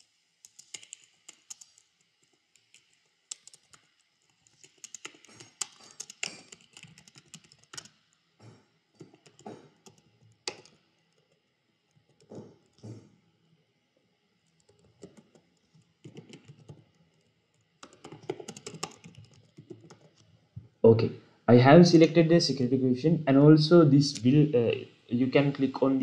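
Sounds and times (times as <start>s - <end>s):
computer keyboard typing: 0.4s - 8.0s, 9.0s - 10.8s, 14.5s - 20.3s.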